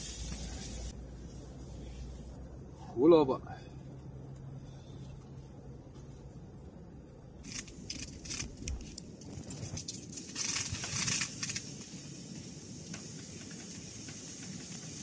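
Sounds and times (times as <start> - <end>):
firewood crackling and popping: 7.4 - 15.0.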